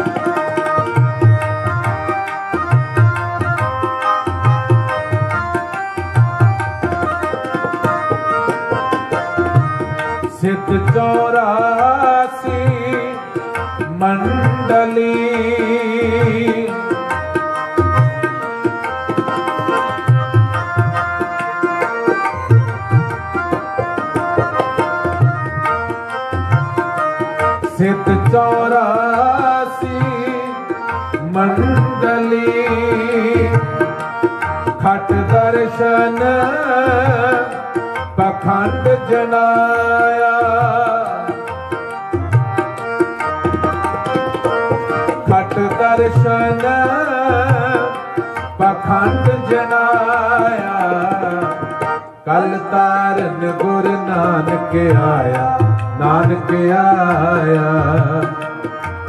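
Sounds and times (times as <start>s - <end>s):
harmonium melody: 0.0s - 59.0s
tabla beat: 0.0s - 59.0s
person singing: 10.3s - 17.1s, 27.6s - 41.5s, 45.2s - 59.0s.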